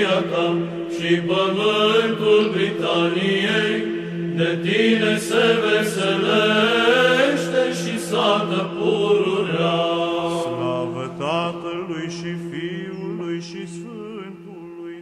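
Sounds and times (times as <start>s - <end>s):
voices chanting melodic line: 10.0s - 15.0s.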